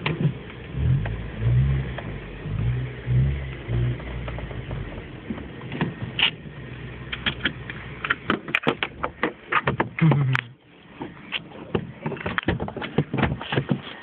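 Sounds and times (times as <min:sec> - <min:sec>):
clicks and rattles in car cabin: 0:00.0 - 0:00.4, 0:04.0 - 0:06.4, 0:07.1 - 0:14.0.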